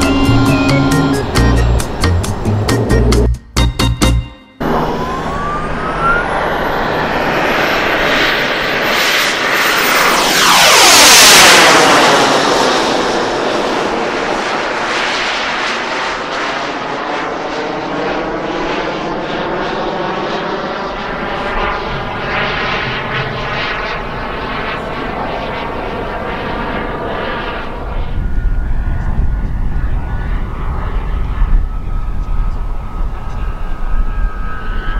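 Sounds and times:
jet turbine whine: 0.0s - 3.3s, 4.4s - 34.9s.

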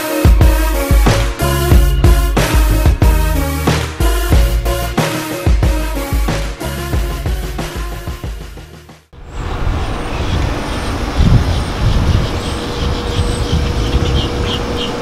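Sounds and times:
background music: 0.0s - 9.1s
road traffic rumble: 9.2s - 15.0s.

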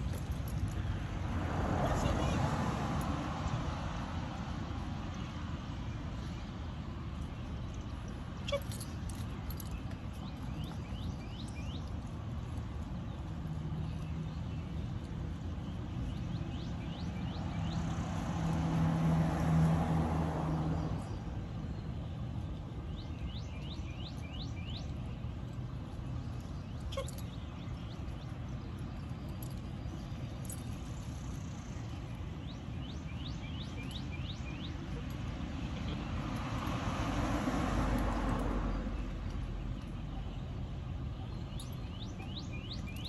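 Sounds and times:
small birds chirping: 5.1s - 18.6s, 21.0s - 36.8s, 38.8s - 43.0s.

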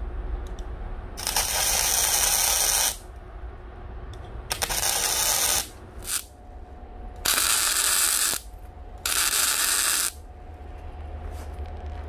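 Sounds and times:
welder arc crackling: 1.2s - 3.1s, 4.5s - 6.3s, 7.2s - 10.2s.

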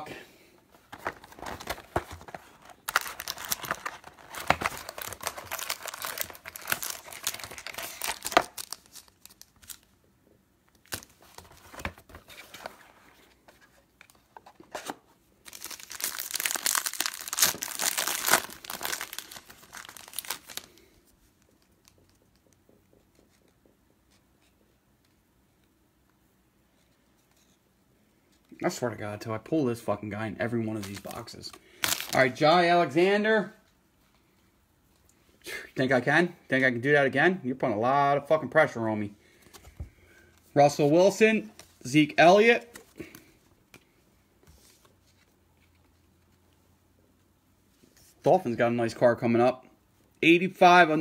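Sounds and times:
foil wrapper tearing and crinkling: 2.9s - 9.8s, 15.5s - 20.8s, 31.8s - 32.2s.

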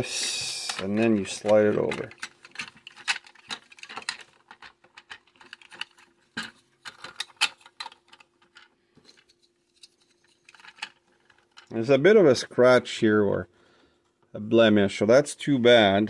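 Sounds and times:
plastic toy parts clicking: 0.5s - 8.7s, 10.4s - 11.7s.

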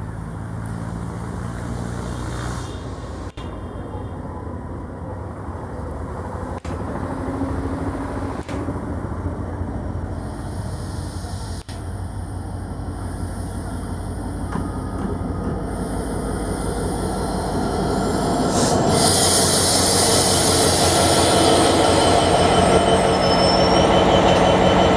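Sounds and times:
diesel locomotive engine: 0.0s - 24.9s
high wheel squeal: 15.9s - 24.9s.

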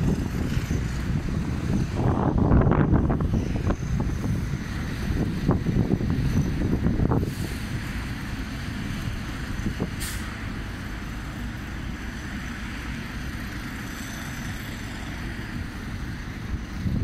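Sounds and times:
wind on microphone: 0.0s - 10.0s, 15.4s - 17.0s
distant road traffic: 0.0s - 17.0s
brief hiss: 10.0s - 10.4s.

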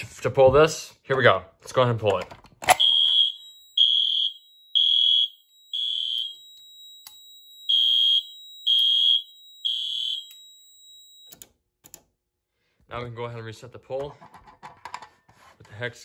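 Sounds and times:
fire alarm pulsing beeps: 2.7s - 11.4s.

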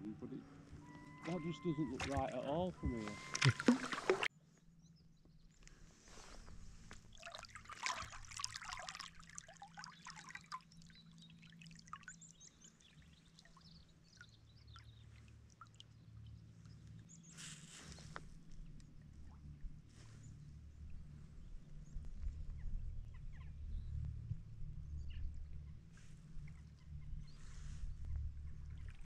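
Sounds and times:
paddle stroke splash: 1.2s - 4.3s, 6.9s - 10.7s
water dripping off paddle: 2.0s - 4.3s, 7.0s - 16.0s.

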